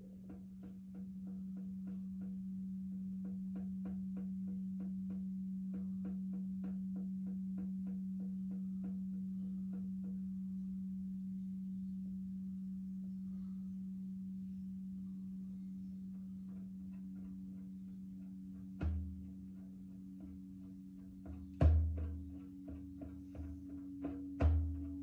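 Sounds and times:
singing bowl low tone: 0.0s - 25.0s.

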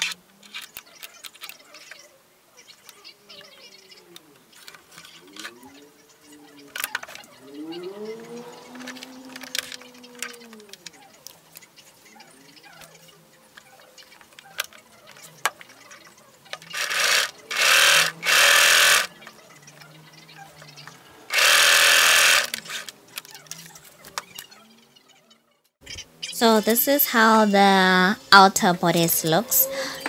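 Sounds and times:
sewing machine stitching: 16.7s - 19.2s, 21.3s - 22.9s.

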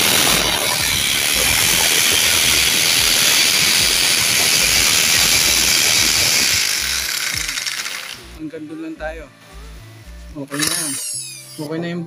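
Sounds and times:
hammer drill boring into concrete: 0.0s - 8.4s, 10.5s - 11.7s.

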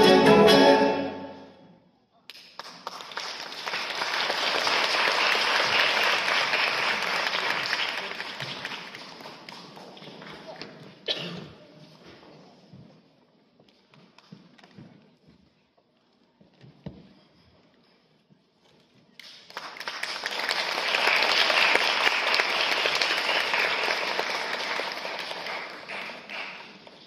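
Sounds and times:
audience applauding: 2.3s - 10.6s, 19.2s - 27.0s.

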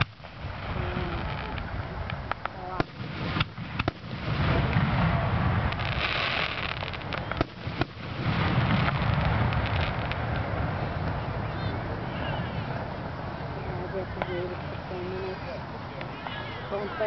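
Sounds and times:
fireworks shells bursting: 0.0s - 11.2s
rolling rumble of booms: 0.0s - 16.9s
fireworks crackle: 0.0s - 17.0s.

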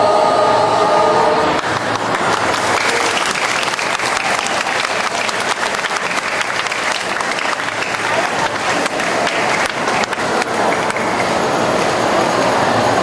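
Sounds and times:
audience applauding: 1.6s - 11.6s.

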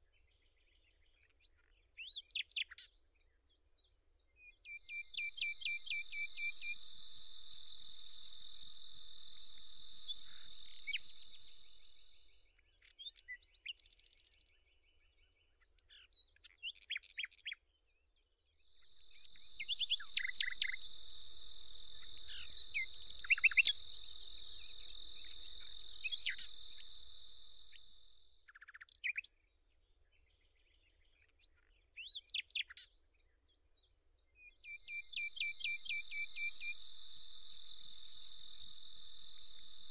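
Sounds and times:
short bird chirps: 4.5s - 14.6s, 18.7s - 29.4s, 34.4s - 39.9s
insect trilling: 4.9s - 12.4s, 18.7s - 28.4s, 34.8s - 39.9s.

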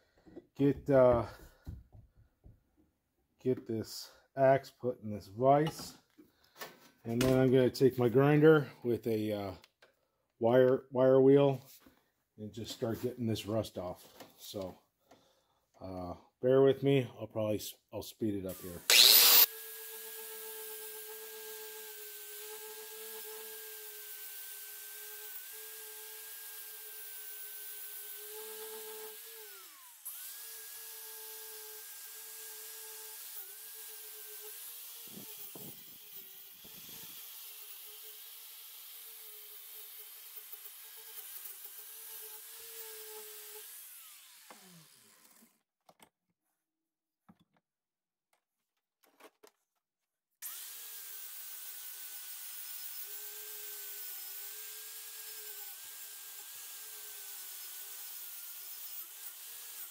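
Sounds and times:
wire wheel grinder on metal: 18.9s - 19.5s.

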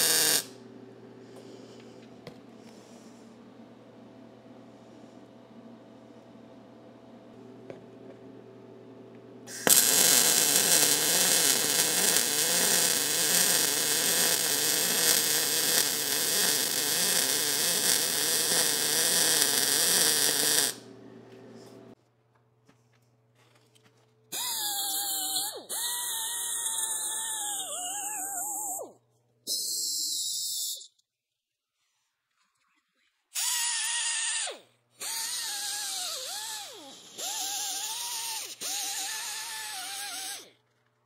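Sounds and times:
arc welding crackling: 0.0s - 0.5s, 9.5s - 20.8s
air die grinder whine: 9.5s - 21.0s.

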